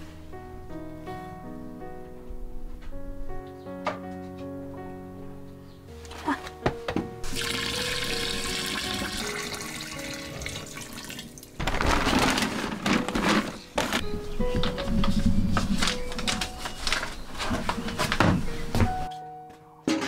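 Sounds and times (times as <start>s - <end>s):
soft background music: 0.0s - 20.0s
water pouring onto rice: 7.3s - 11.4s
paper crinkling: 11.5s - 18.9s.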